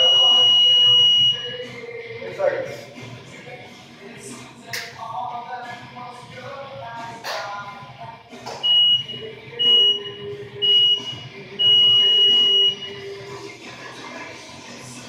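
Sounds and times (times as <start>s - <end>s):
long timer beep: 0.0s - 1.5s, 8.7s - 13.1s.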